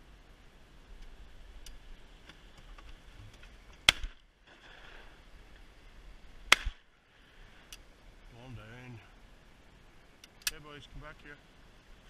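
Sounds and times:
shotgun shots: 6.5 - 6.8.

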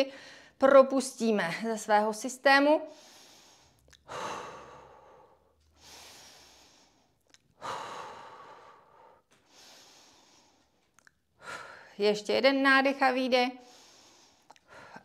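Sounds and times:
woman breathing deeply: 2.9 - 12.0, 13.6 - 15.0.

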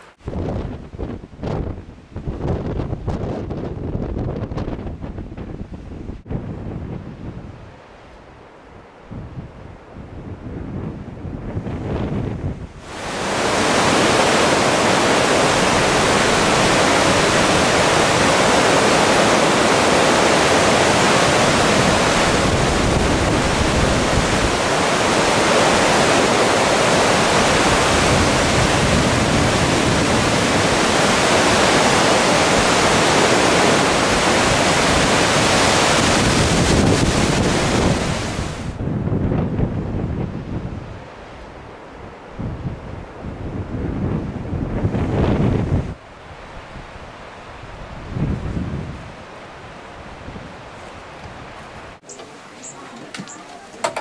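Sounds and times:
fast-flowing river rushing: 12.8 - 38.8.

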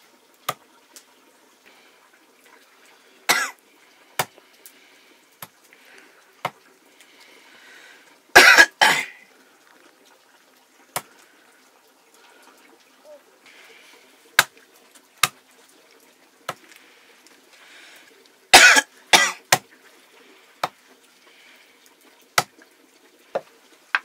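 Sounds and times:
person coughing: 3.3 - 3.6, 8.4 - 9.2, 18.6 - 19.4.

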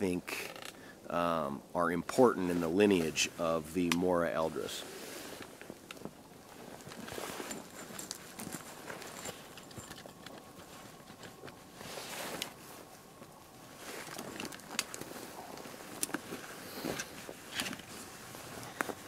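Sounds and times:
crunching in snow: 4.2 - 9.9, 10.5 - 19.0
fabric and pack rustling: 4.2 - 19.0.

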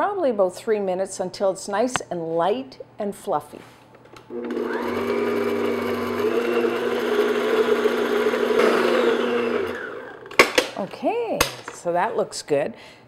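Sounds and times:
stand mixer motor beating: 4.3 - 10.4.

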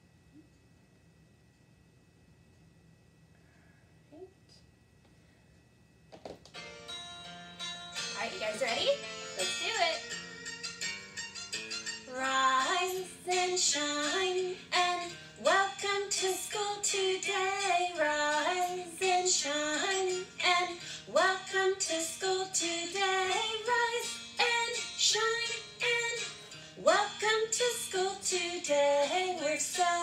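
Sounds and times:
children's song: 11.8 - 30.0.

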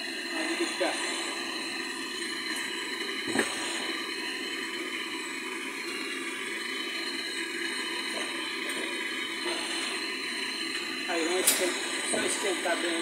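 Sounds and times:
torch flame hissing: 0.0 - 13.0.

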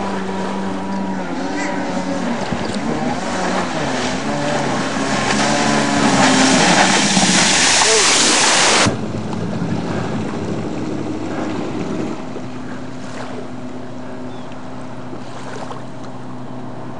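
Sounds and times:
jet ski engine running: 0.0 - 16.9
loud rushing noise: 3.0 - 10.7.

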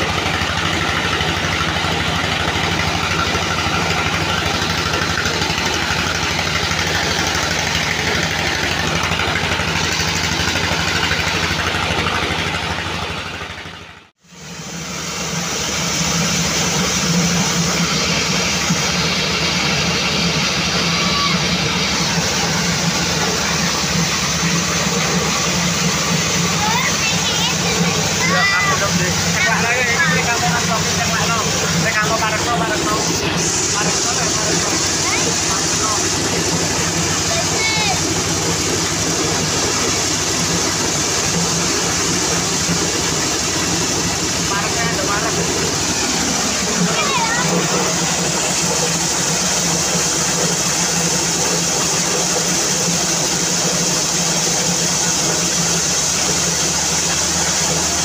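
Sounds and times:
corn sheller machine running: 0.0 - 58.0
low engine hum: 0.0 - 58.0.

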